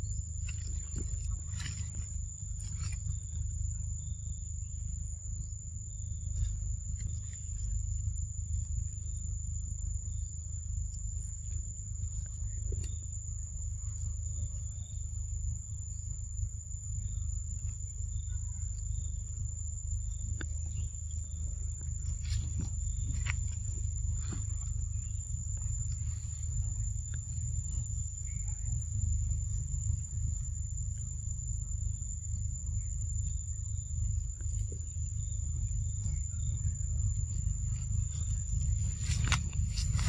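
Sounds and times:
faint clicks of leaves and twigs: 0.4 - 4.2, 5.9 - 9.2, 20.3 - 31.1, 34.0 - 40.0
low rumble: 18.7 - 40.0.

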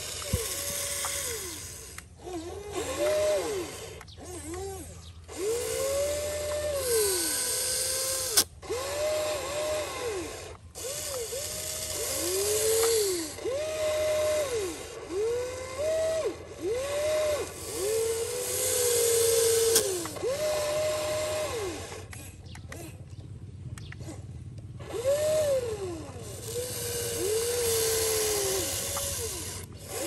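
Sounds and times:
toy excavator electric motors whining: 0.0 - 30.0
sharp click: 23.7 - 24.7.

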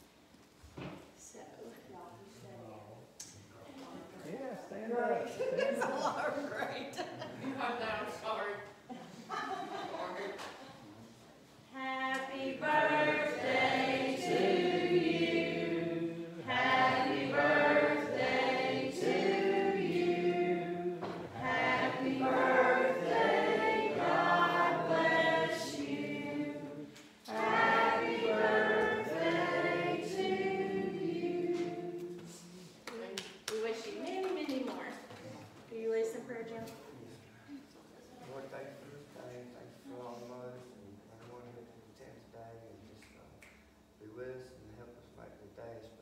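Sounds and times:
group singing a hymn: 11.7 - 32.8.

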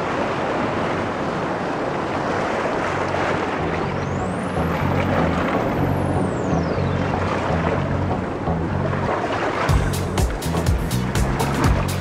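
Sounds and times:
surf roaring through rocks: 0.0 - 5.9.

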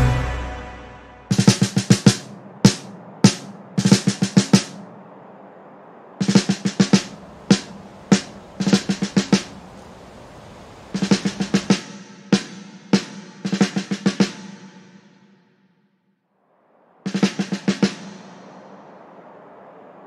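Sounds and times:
snare drum hits: 1.3 - 4.8, 11.0 - 14.9.

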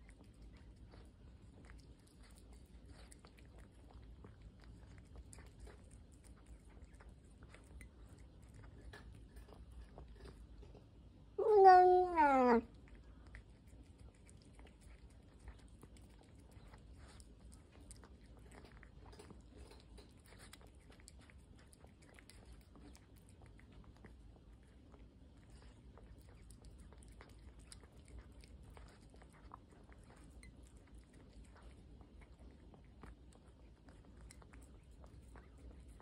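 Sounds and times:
cat chewing wet food: 0.0 - 36.0
cat meowing: 11.4 - 12.7.

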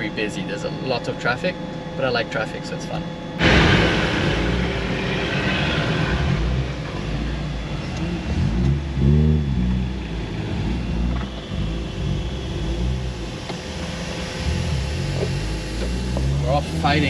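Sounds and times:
car engine and road rumble: 0.0 - 17.0
engine revving: 3.4 - 17.0.

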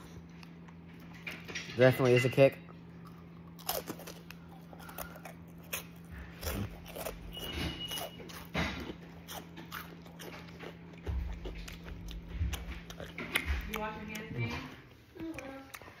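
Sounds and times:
steady low hum: 0.0 - 16.0
person chewing crunchy snack: 2.8 - 14.3.

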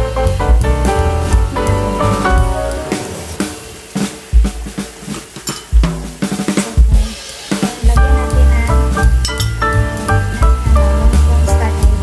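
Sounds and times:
drum kit: 0.0 - 12.0
melodic pitched notes: 8.0 - 11.7.

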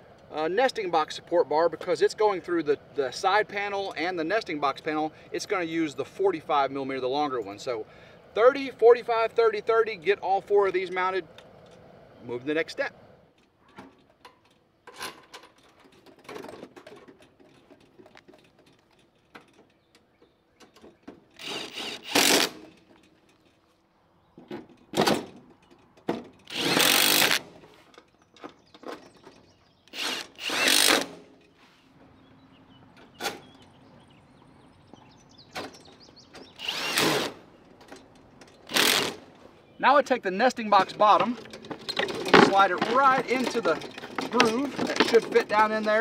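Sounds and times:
metal parts clicking and knocking: 13.4 - 23.6, 40.8 - 46.0
cordless drill running: 21.4 - 22.6, 26.5 - 27.5, 29.9 - 31.2, 36.6 - 37.4, 38.7 - 39.2.

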